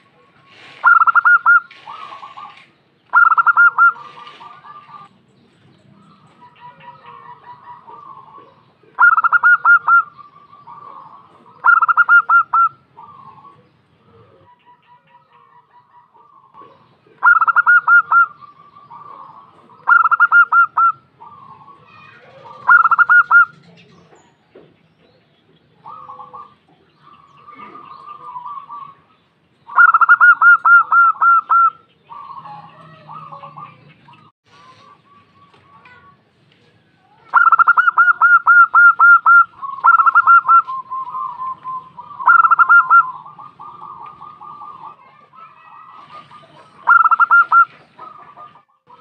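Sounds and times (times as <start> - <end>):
dove staccato cooing: 0.0 - 5.1, 6.2 - 29.1, 29.7 - 36.0, 37.2 - 49.0
soft low dove coos: 25.8 - 29.1.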